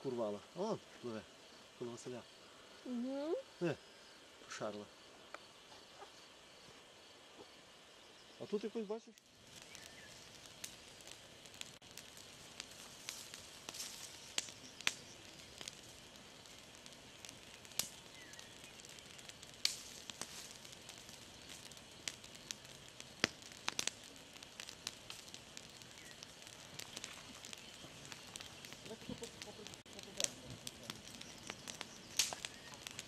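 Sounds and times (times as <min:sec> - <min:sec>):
campfire crackling: 0:00.0 - 0:33.0
faint hiss: 0:00.0 - 0:33.0
sharp pops of fire: 0:08.4 - 0:33.0.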